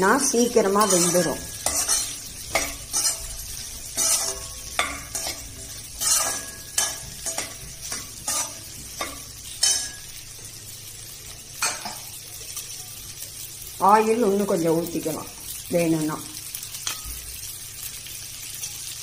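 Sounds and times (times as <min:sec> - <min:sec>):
oil sizzling: 0:00.0 - 0:19.0
metal spoon scraping a pan: 0:00.2 - 0:10.4, 0:11.6 - 0:12.2.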